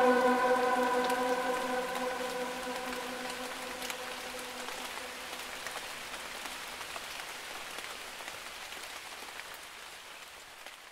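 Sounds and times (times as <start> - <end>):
held musical note: 0.0 - 5.0
steady rain falling: 0.0 - 10.9.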